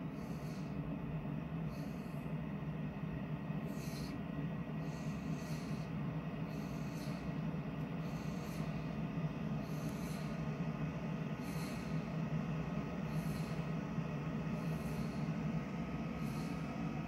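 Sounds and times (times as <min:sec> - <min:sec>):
dog breathing through nose: 0:01.6 - 0:02.4, 0:03.6 - 0:04.2, 0:04.8 - 0:17.0.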